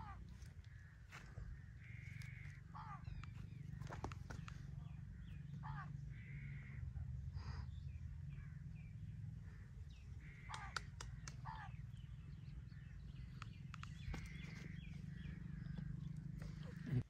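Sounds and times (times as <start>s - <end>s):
birds chirping: 0.0s - 17.0s
sharp clicks: 10.4s - 11.5s, 13.1s - 14.5s.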